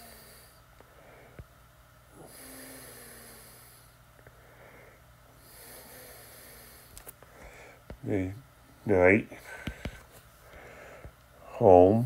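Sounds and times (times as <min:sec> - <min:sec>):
faint slow breathing: 0:00.0 - 0:01.5, 0:02.1 - 0:08.0, 0:09.4 - 0:11.5.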